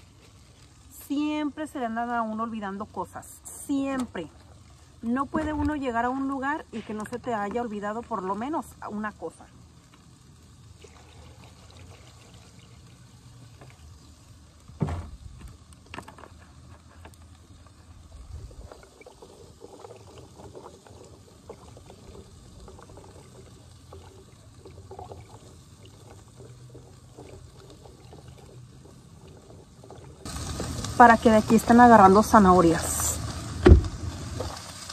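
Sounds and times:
water pouring into plastic tub: 0:10.8 - 0:13.0
sharp knock: 0:33.6 - 0:33.9.

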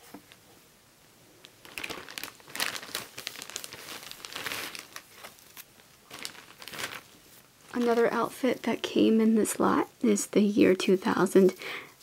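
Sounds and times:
plastic bag crinkling: 0:01.4 - 0:08.9.

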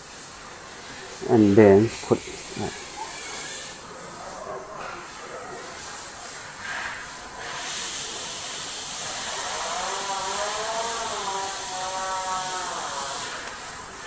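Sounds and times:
steady hiss: 0:00.0 - 0:14.0
faint wavering voice: 0:01.2 - 0:03.7.

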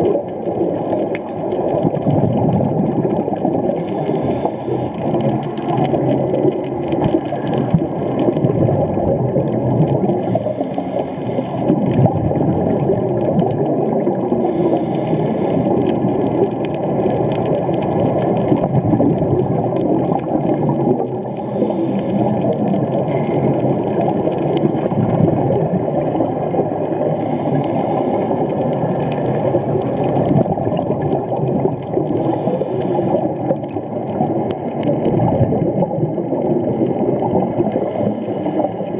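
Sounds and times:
low underwater rumble: 0:00.0 - 0:38.9
scuba exhaust bubbles gurgling: 0:00.0 - 0:38.9.

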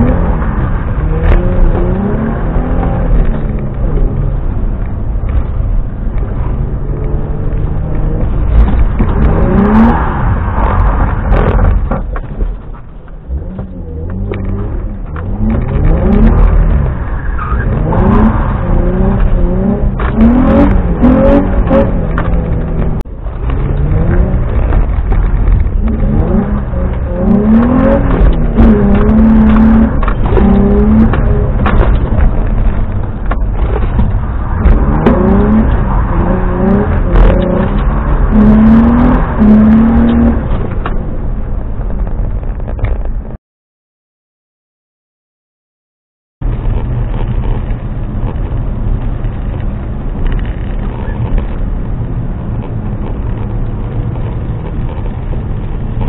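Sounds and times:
car engine revving: 0:00.0 - 0:43.0, 0:46.4 - 0:56.0.

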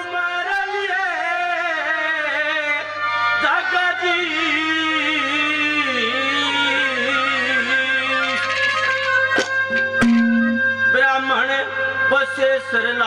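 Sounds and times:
man singing slow melody: 0:00.0 - 0:08.6
instrument holding steady notes: 0:09.7 - 0:11.2.

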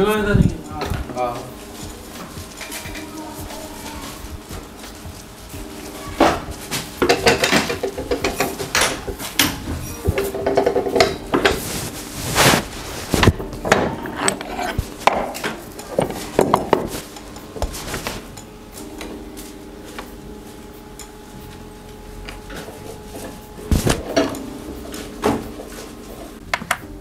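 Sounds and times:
metal clanking and rattling: 0:06.2 - 0:11.6.

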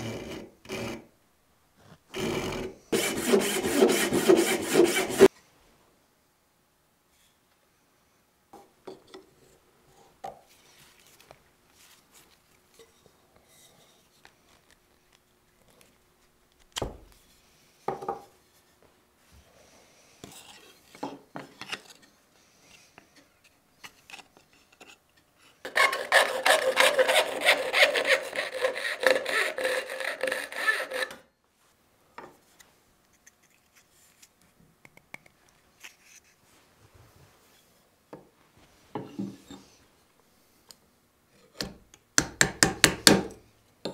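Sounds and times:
file rasping on wood: 0:00.0 - 0:01.0, 0:02.2 - 0:05.3, 0:25.7 - 0:31.2.

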